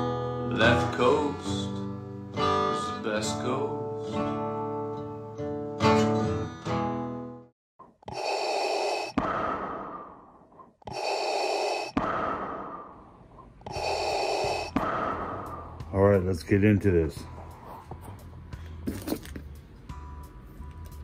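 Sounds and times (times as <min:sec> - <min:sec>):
guitar music: 0:00.0 - 0:07.5
mechanical respirator breathing: 0:08.0 - 0:15.8.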